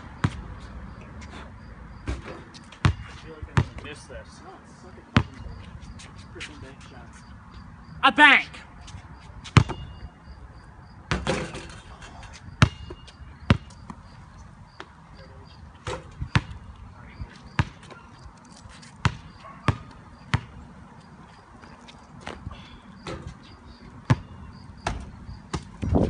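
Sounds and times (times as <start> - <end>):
basketball bouncing on concrete: 0.0 - 0.6, 1.9 - 3.9, 5.2 - 5.5, 9.4 - 10.0, 11.1 - 11.6, 12.6 - 14.1, 14.8 - 16.7, 17.4 - 18.2, 19.0 - 20.7, 21.6 - 26.0.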